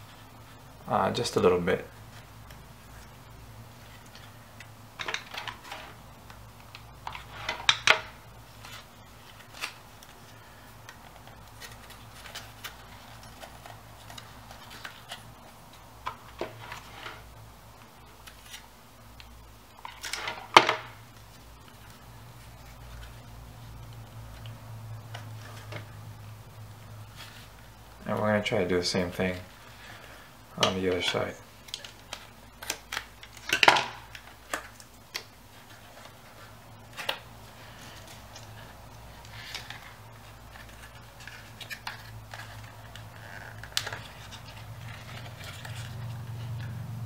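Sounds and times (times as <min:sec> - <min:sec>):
faint low hum: 0:00.0 - 0:47.0
paper rustling: 0:05.0 - 0:17.3, 0:29.0 - 0:46.8.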